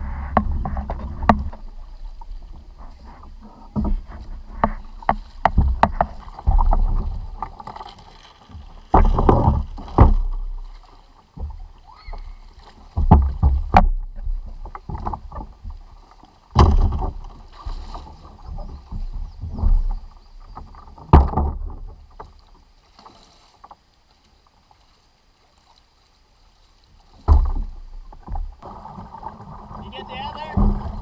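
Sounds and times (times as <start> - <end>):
person wading in shallow water: 0.0 - 31.0
thumps on plastic kayak hull: 0.3 - 1.8, 3.7 - 22.3, 27.2 - 31.0.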